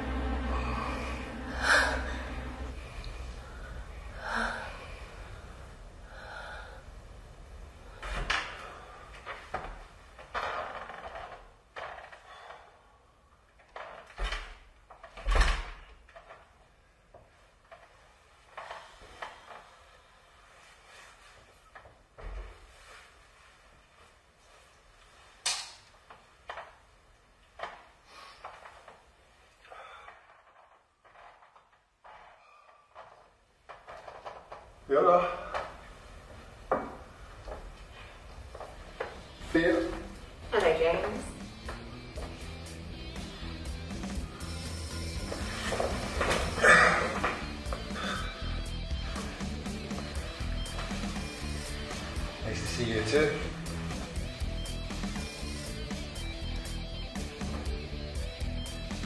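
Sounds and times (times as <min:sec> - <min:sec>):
person gasping: 0:00.4 - 0:02.6, 0:03.4 - 0:06.9, 0:46.5 - 0:48.5.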